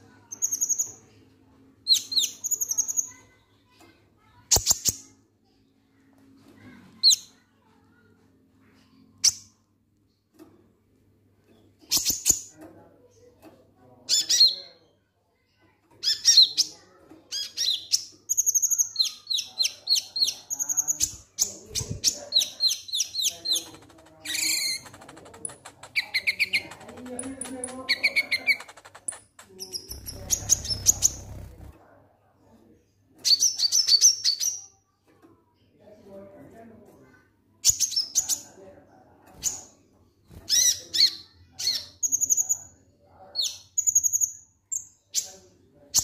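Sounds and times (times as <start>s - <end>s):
bird chirping: 17.3s - 31.7s.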